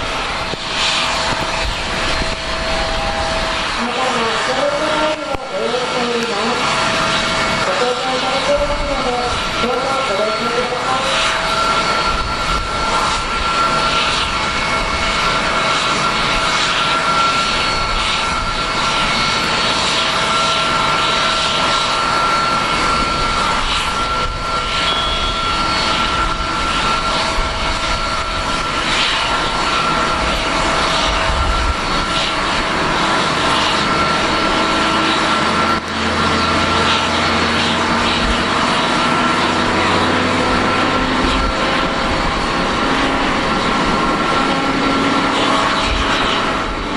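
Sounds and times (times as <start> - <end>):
high jet engine whine: 0.0 - 46.9.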